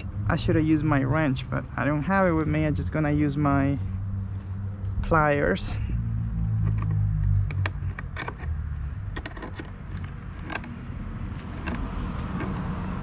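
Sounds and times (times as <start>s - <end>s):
metal clicks and ticks: 6.6s - 10.8s, 11.4s - 12.6s.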